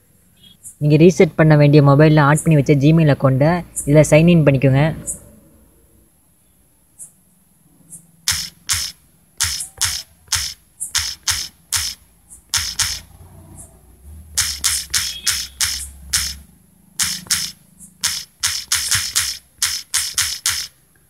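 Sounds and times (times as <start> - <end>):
phone keyboard clicks: 8.2 - 13.1, 14.4 - 20.8.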